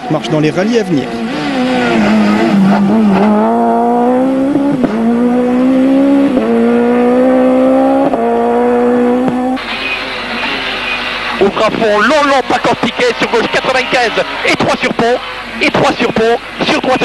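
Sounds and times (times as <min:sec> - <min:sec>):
rally car engine at high revs: 0:00.0 - 0:17.0.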